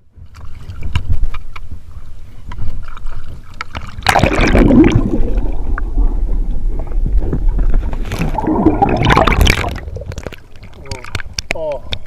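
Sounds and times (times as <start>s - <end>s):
water splashing: 2.6s - 11.7s
underwater churning and gurgling: 2.7s - 12.0s.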